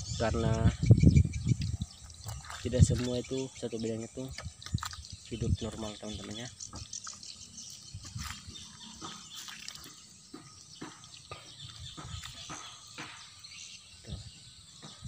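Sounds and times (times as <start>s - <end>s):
footsteps on dry leaves: 7.7s - 12.9s.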